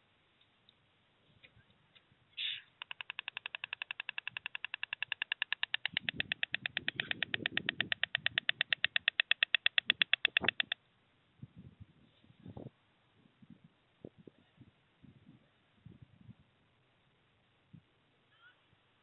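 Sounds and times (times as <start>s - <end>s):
stork bill clattering: 2.6s - 10.8s.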